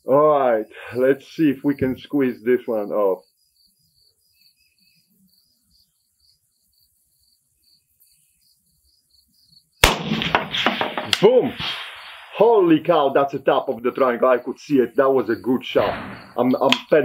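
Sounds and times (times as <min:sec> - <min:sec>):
crickets chirping: 0:00.0 - 0:17.0
rifle shot with echo: 0:09.8 - 0:12.8, 0:15.8 - 0:16.8.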